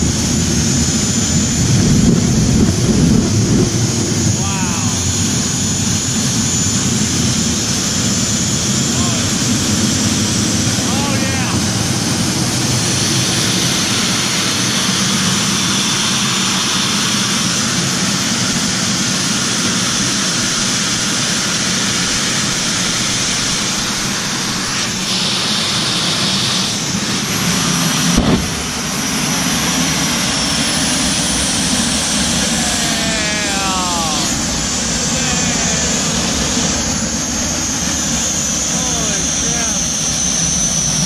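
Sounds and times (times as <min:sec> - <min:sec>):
jet engine roaring: 0:00.0 - 0:41.0
sharp thump: 0:28.1 - 0:28.9.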